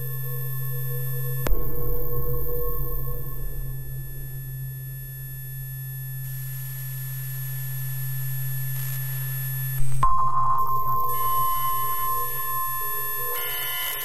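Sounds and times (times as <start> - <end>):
low electronic hum: 0.0 - 6.9.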